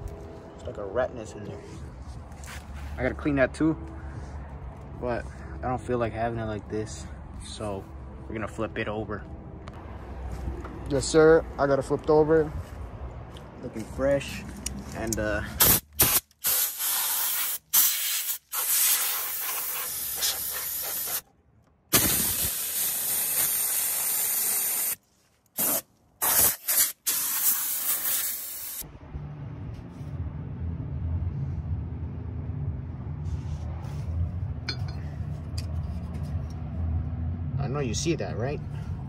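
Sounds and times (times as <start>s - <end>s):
pressurised spray hissing: 15.6s - 21.2s, 22.0s - 25.0s, 25.6s - 28.8s
low rumble: 28.8s - 37.9s.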